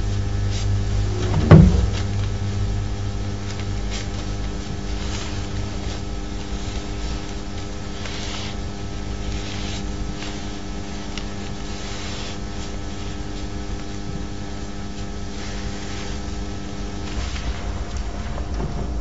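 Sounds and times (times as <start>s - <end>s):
electrical hum: 0.0s - 19.0s
low rumble: 0.8s - 3.6s, 16.8s - 19.0s
brush swishing across paper: 3.4s - 18.4s.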